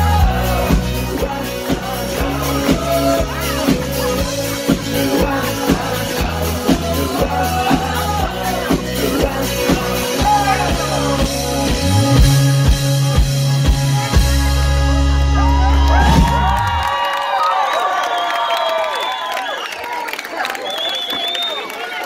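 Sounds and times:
bass notes: 0.0s - 16.9s
drums beating: 0.0s - 16.9s
live pop-rock band: 0.0s - 16.9s.

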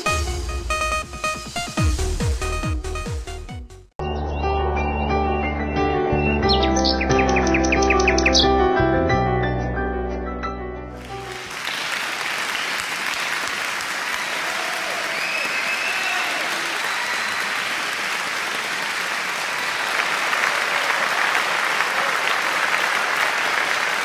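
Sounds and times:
audience applause: 11.0s - 24.0s.

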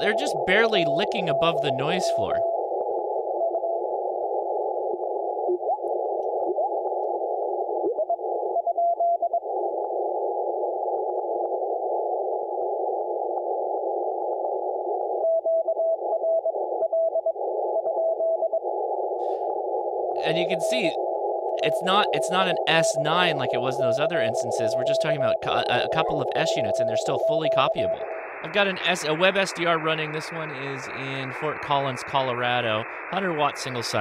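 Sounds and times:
radio band noise hiss: 0.0s - 2.5s, 20.2s - 21.0s, 21.6s - 34.0s
sliding radio tones: 0.0s - 2.6s, 20.2s - 34.0s
weak morse code tones: 0.0s - 2.6s, 20.2s - 34.0s.

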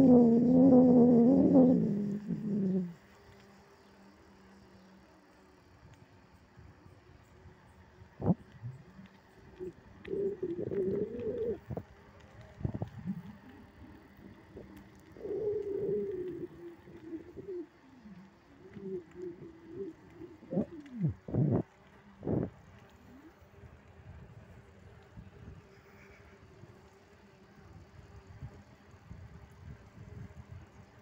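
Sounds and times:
pigeon cooing: 0.0s - 3.0s, 8.8s - 11.9s, 12.8s - 22.5s.

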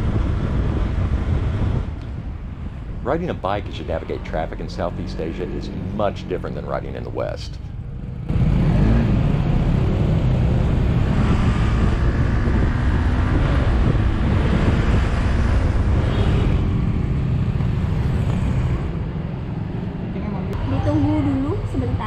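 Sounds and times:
wind noise on microphone: 0.0s - 5.8s, 8.8s - 19.2s.

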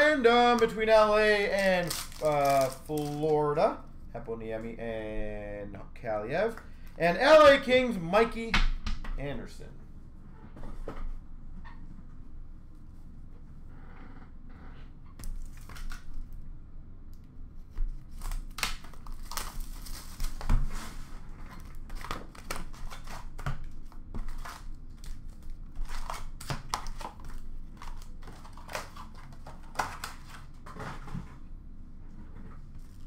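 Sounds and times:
foil packs rustling: 0.0s - 3.6s, 18.0s - 31.4s
packaging crinkling and tearing: 0.4s - 3.5s, 18.0s - 30.6s.

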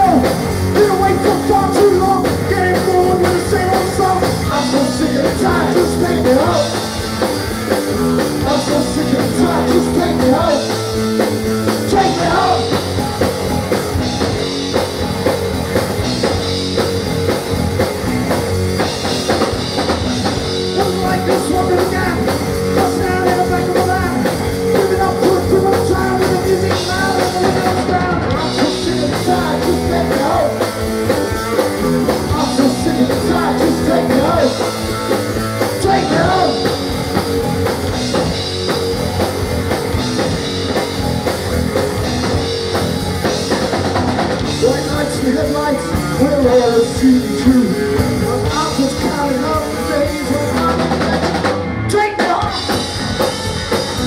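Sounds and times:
person singing: 0.0s - 6.9s, 8.4s - 10.8s, 11.8s - 12.8s, 20.6s - 30.7s, 32.0s - 34.8s, 35.7s - 36.9s, 44.5s - 51.2s
distorted electric guitars: 0.0s - 54.0s
drum kit: 0.0s - 54.0s.

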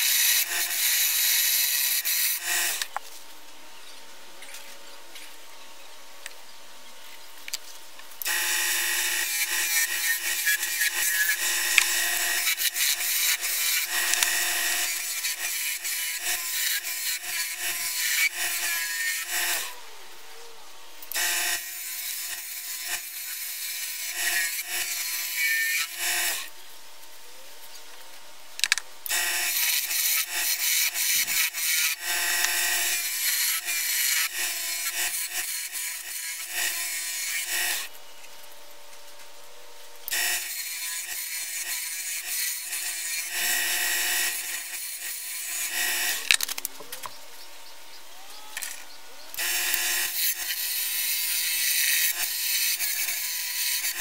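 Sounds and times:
wood lathe turning: 0.0s - 2.9s, 8.2s - 19.8s, 28.6s - 37.9s, 48.6s - 54.0s.

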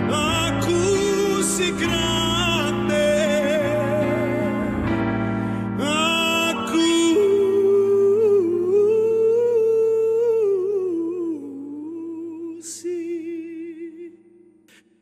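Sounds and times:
man singing a long note: 0.0s - 5.0s, 5.8s - 14.4s
short breath: 5.2s - 5.8s.

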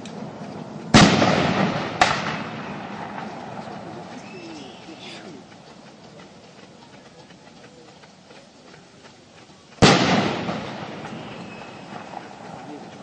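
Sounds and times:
loud echoing bang: 0.9s - 3.3s, 9.8s - 12.2s.

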